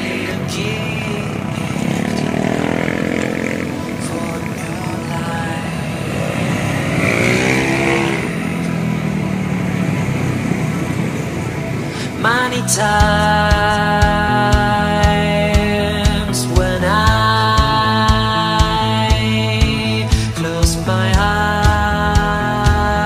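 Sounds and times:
scooters and motorcycles passing: 0:00.0 - 0:16.8.

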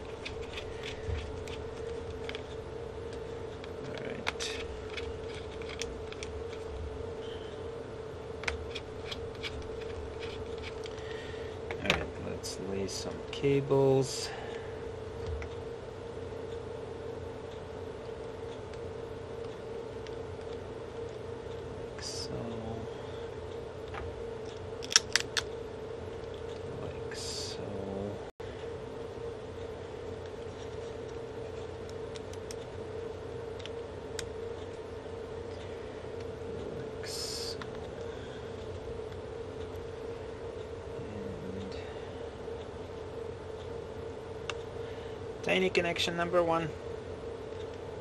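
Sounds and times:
steady hum: 0:00.0 - 0:48.0
screwdriver clicks and ticks: 0:24.8 - 0:25.5.

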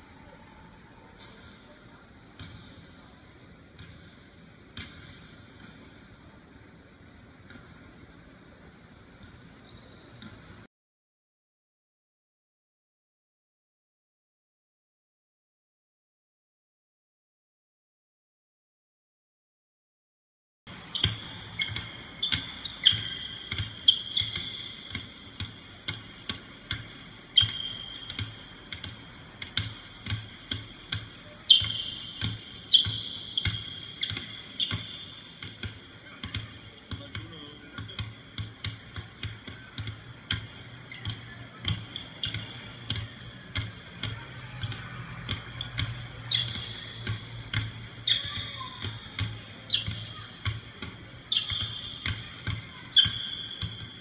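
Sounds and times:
basketballs bouncing on court floor: 0:02.4 - 0:02.8, 0:04.8 - 0:05.8, 0:20.9 - 0:54.0.

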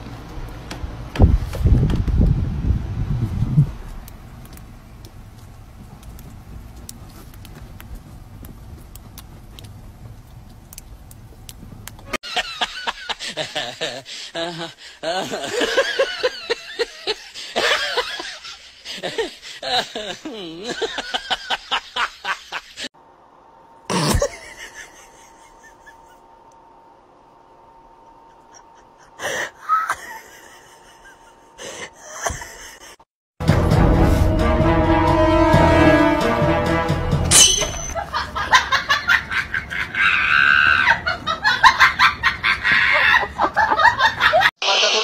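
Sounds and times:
person laughing: 0:12.3 - 0:22.9, 0:23.9 - 0:26.3, 0:28.3 - 0:33.0, 0:37.8 - 0:45.0
music: 0:33.4 - 0:37.3
loud honk-like sound: 0:33.9 - 0:38.0.

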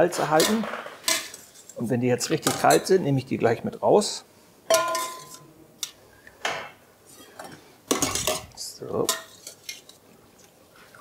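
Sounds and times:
metal bowls clinking on stone: 0:04.7 - 0:05.5.

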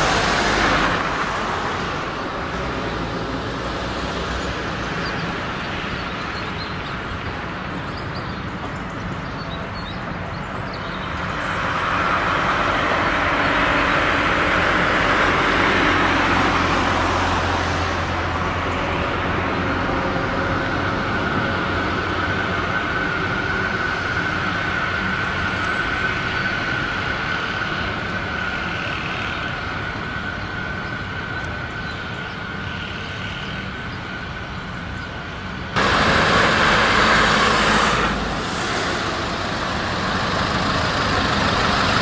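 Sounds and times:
road traffic: 0:00.0 - 0:42.0
tram running rumble: 0:00.0 - 0:42.0
van passing: 0:00.0 - 0:42.0.

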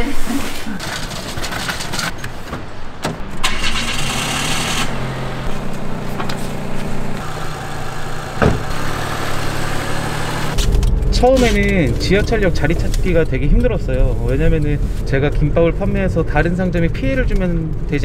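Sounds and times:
car engine idling: 0:02.2 - 0:18.0
knocks: 0:08.4 - 0:08.7
sharp thump: 0:08.4 - 0:08.8.

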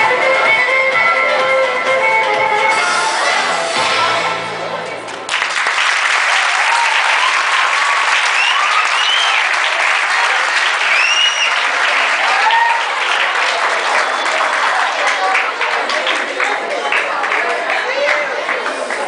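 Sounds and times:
music playing: 0:00.0 - 0:05.5
crowd applauding: 0:04.8 - 0:19.0
children cheering: 0:05.3 - 0:16.1.

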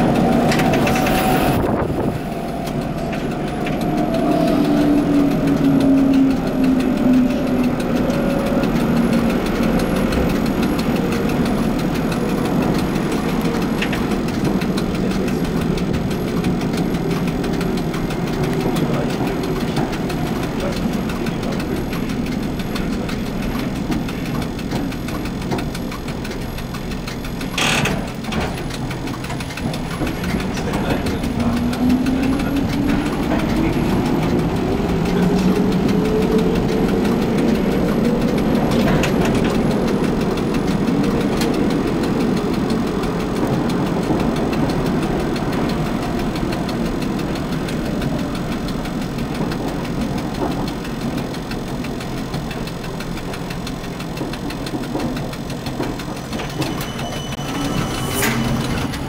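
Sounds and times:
steel wheels rumbling on rail: 0:00.0 - 0:59.0
tram motor whine: 0:00.0 - 0:59.0
sharp clack: 0:52.1 - 0:59.0.

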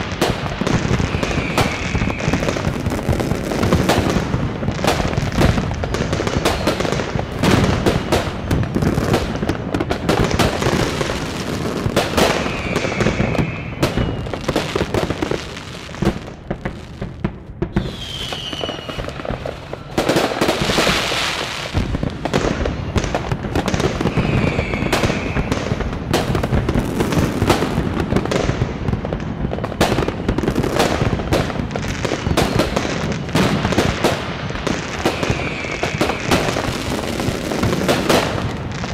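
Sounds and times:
fireworks crackling and banging: 0:00.0 - 0:38.9
falling firework whistles: 0:00.1 - 0:08.2, 0:10.4 - 0:16.0, 0:17.7 - 0:27.6, 0:31.9 - 0:38.9.

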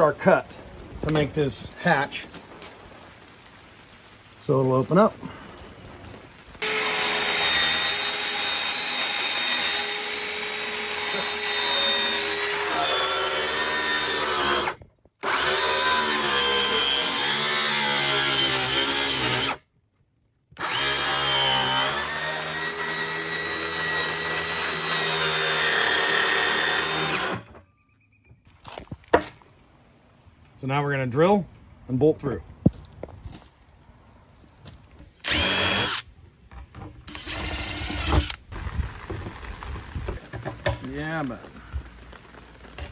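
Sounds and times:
circular saw cutting plastic: 0:06.6 - 0:19.6, 0:20.6 - 0:27.6, 0:35.2 - 0:36.1, 0:37.1 - 0:38.4.

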